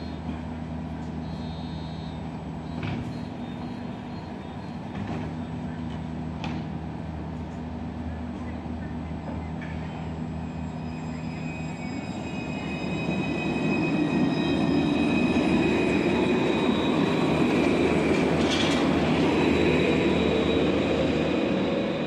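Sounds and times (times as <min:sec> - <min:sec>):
tram high whine: 0:00.0 - 0:22.0
wheels rumbling on rail: 0:00.0 - 0:22.0.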